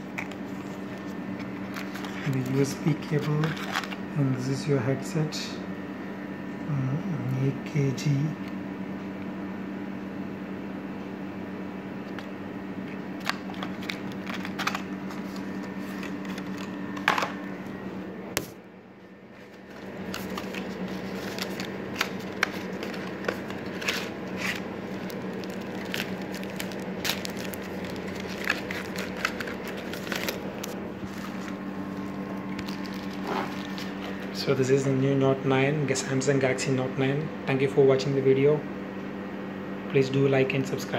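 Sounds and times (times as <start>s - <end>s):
steady low hum: 0.0s - 40.9s
plastic packaging crinkling: 0.2s - 4.0s, 13.2s - 17.4s, 19.3s - 34.4s.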